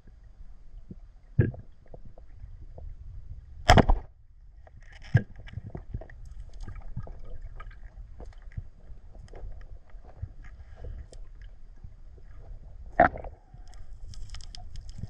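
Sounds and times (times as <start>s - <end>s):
sharp knock underwater: 3.6s - 4.1s
underwater clicks and crackles: 3.6s - 15.0s
speargun snap underwater: 3.7s - 4.0s.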